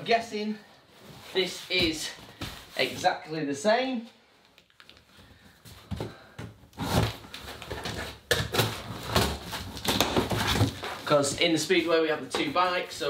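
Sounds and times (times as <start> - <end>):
cardboard and tape rustling: 4.6 - 13.0.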